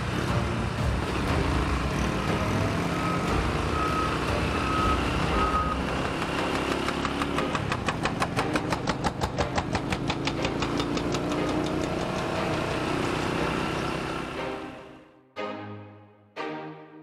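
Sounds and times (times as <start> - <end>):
motorcycle engine: 0.0 - 14.8
road noise: 0.0 - 15.1
short beeps: 3.1 - 5.8.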